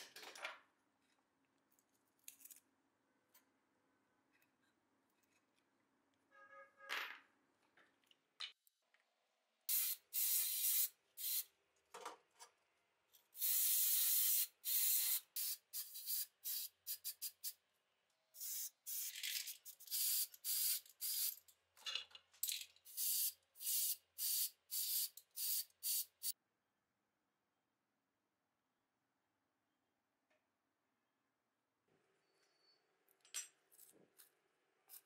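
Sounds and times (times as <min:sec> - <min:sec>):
spray paint can hissing: 0:09.7 - 0:11.5, 0:13.4 - 0:17.6, 0:18.4 - 0:21.4, 0:22.9 - 0:26.4.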